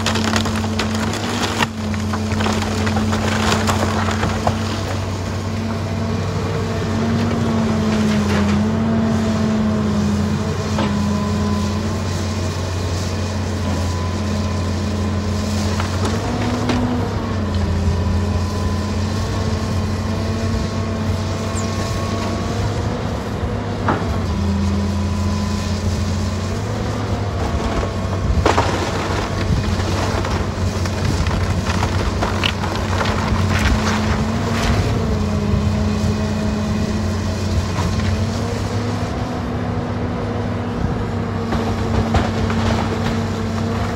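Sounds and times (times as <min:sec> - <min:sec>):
timbers cracking: 0:00.0 - 0:05.2, 0:27.6 - 0:35.0
excavator diesel engine: 0:00.0 - 0:43.9.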